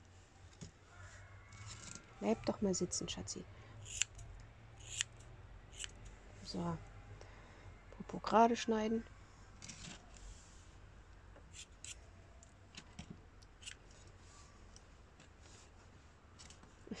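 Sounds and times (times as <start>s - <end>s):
scissors snipping hair: 3.8s - 6.0s, 13.6s - 13.8s.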